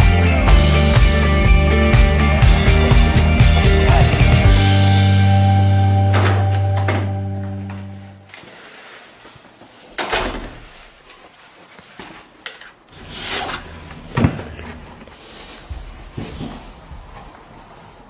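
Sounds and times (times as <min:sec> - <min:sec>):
padded jacket rustling: 0:07.5 - 0:18.0.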